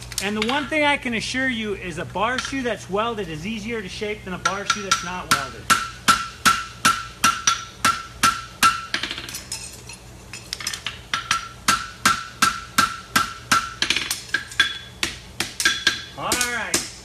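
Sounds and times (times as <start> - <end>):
hammer striking horseshoe on anvil: 4.4 - 9.4, 10.8 - 17.0.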